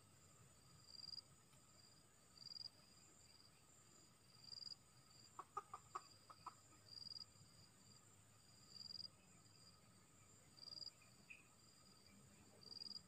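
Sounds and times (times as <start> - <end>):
insects chirping: 0.0 - 13.0
rooster clucking: 5.4 - 6.6.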